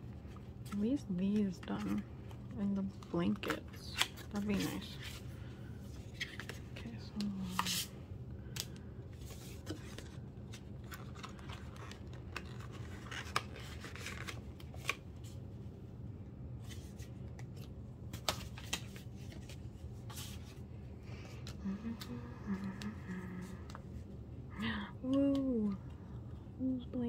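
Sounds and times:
steady low hum: 0.0 - 27.0
cards rustling: 0.1 - 15.4, 16.6 - 24.1.

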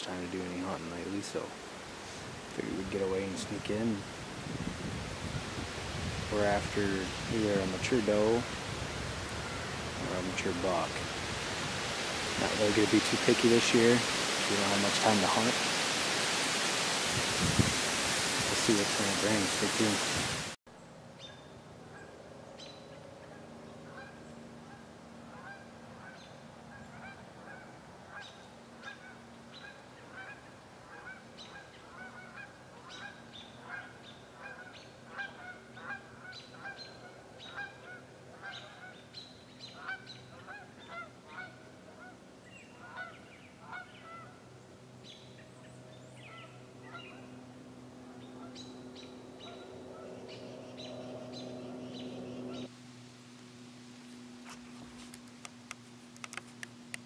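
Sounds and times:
geese honking: 9.3 - 10.9, 23.3 - 39.0, 39.6 - 44.5, 46.2 - 47.4, 48.0 - 52.7
low hum: 44.9 - 57.0.

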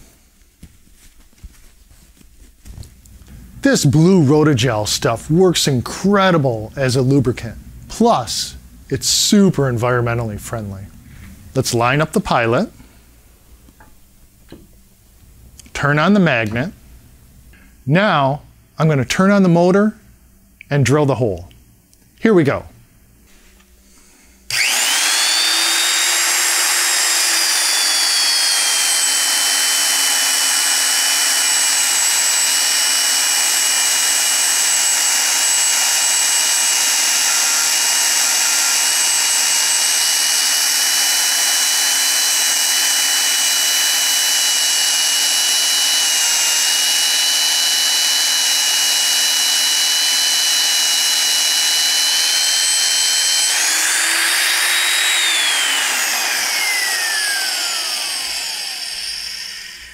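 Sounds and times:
magnetic drill boring through steel: 24.4 - 59.9.

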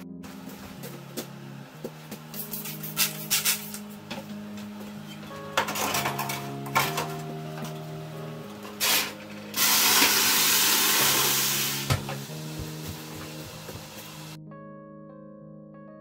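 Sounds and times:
light background music: 0.0 - 16.0
water hissing into steam: 8.8 - 12.0.

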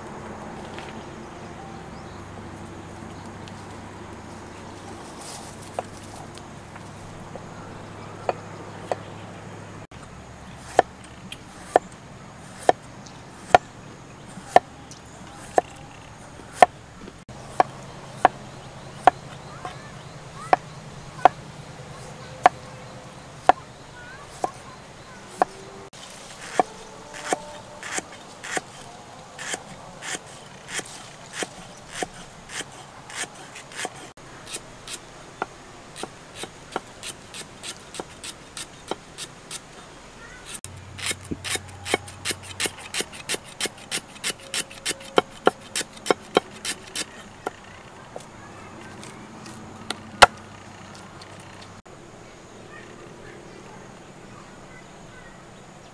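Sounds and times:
knife chopping on wooden block: 26.4 - 28.8, 40.5 - 47.6.

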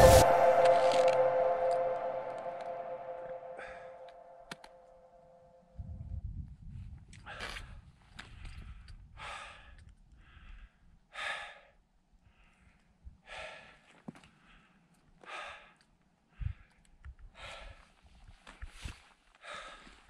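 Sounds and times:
wind rumbling on microphone: 5.8 - 9.2
person breathing hard: 8.2 - 18.0, 19.4 - 20.0.

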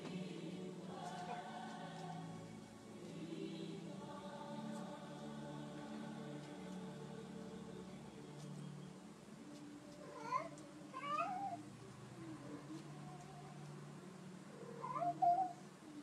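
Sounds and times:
cat yowling: 10.0 - 11.6, 14.6 - 15.6.

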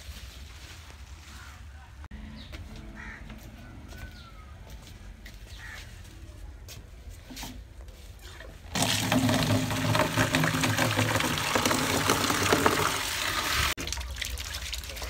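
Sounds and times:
tap water splashing into tub: 8.7 - 15.0.

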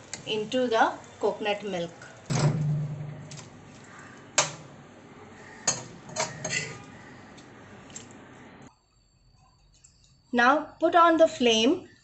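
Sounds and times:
ladle scraping metal cookware: 5.7 - 6.9.

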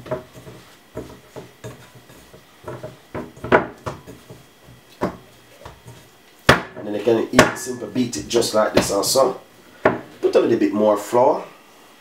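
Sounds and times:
dough kneaded in glass bowl: 0.0 - 9.4.

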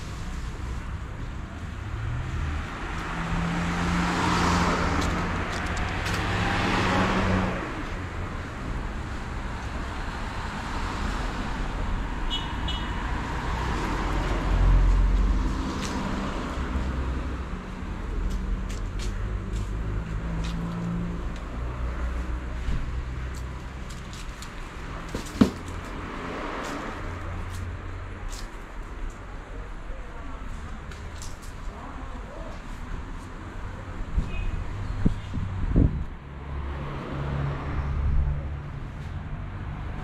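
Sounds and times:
car passing: 1.8 - 12.2, 24.6 - 28.2.

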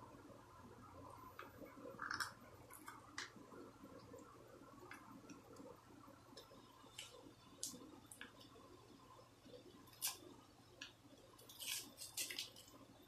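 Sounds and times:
cellophane wrapper crinkling: 11.4 - 12.8.

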